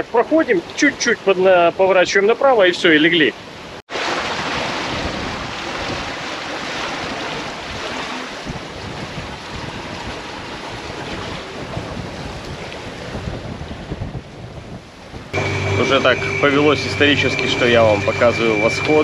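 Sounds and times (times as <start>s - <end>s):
sea water rushing past a hull: 0.0s - 19.0s
wind buffeting the microphone: 4.3s - 15.4s.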